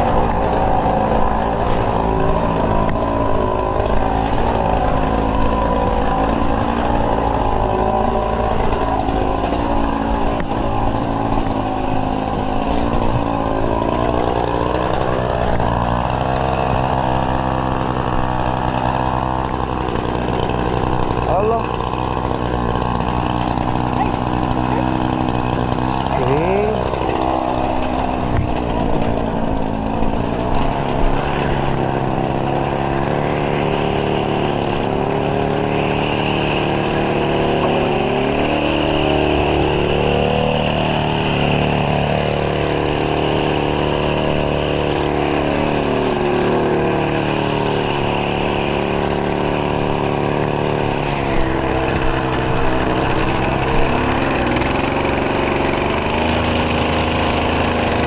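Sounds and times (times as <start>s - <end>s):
small petrol engine running: 0.0s - 58.0s.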